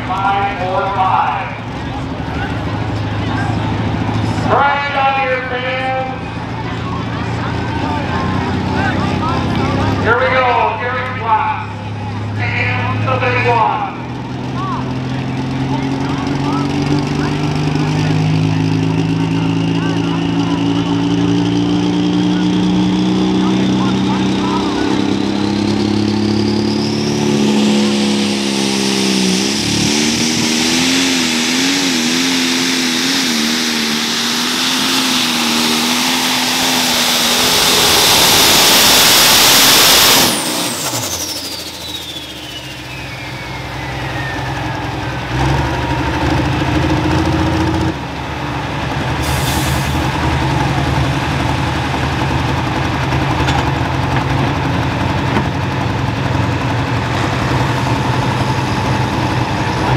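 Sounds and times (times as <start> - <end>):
diesel tractor engine roaring: 0.0 - 59.9
turbo whine: 22.2 - 45.2.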